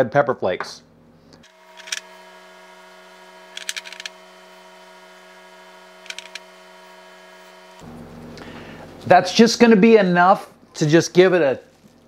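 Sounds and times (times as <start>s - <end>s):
steady hum: 0.8s - 10.8s
pepper flakes rattling onto tray: 3.6s - 4.1s, 6.1s - 6.4s.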